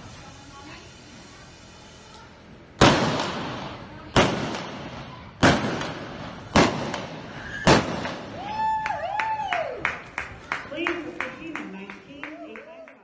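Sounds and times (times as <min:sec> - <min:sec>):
revolver shots with echo: 0:02.8 - 0:08.4.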